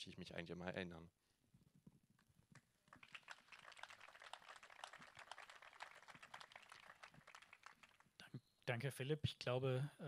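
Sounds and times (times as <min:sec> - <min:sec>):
faint applause: 0:02.9 - 0:08.1.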